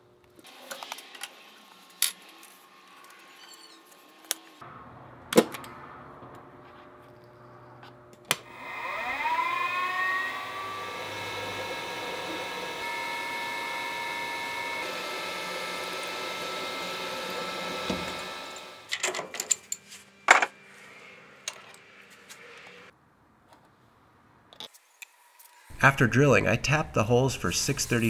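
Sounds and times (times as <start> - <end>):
mill spindle motor whine: 8.4 - 18.9
drill bit drilling into metal: 8.5 - 18.8.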